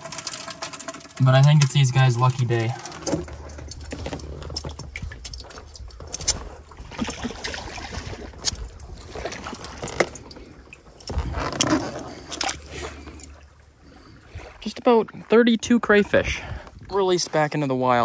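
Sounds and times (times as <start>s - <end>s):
water sloshing: 0.0s - 18.0s
small splashes and plops: 2.8s - 15.3s.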